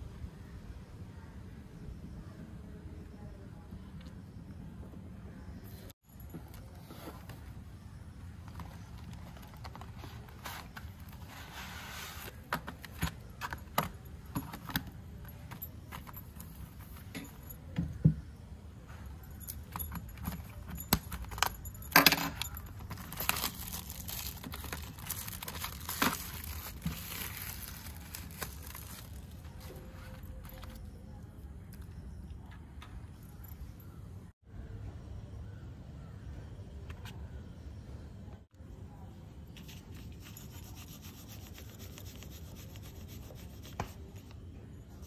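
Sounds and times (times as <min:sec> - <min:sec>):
plastic wrap crinkling: 0:22.7 - 0:30.8.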